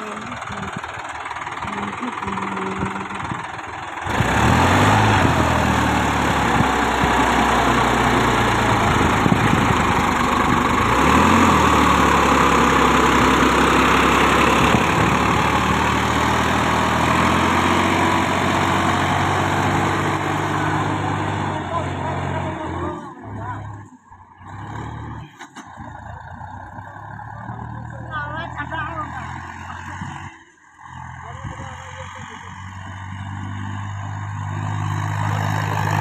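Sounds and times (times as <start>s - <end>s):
tractor diesel engine working hard: 0.0s - 36.0s.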